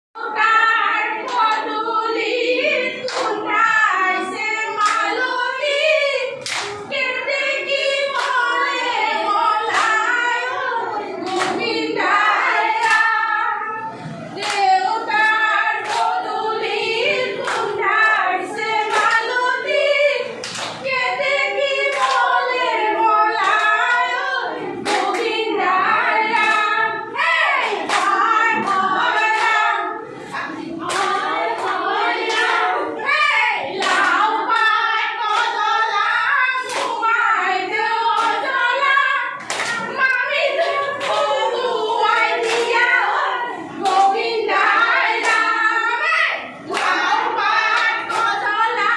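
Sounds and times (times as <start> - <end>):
women singing together: 0.2 - 48.9
hand claps: 3.1 - 3.4, 4.8 - 5.2, 6.4 - 6.8, 12.8 - 13.1, 14.4 - 16.2, 20.4 - 20.8, 24.8 - 25.3, 27.6 - 29.6, 30.8 - 32.6, 36.6 - 37.0, 39.4 - 39.9, 42.4 - 42.8, 45.2 - 45.5.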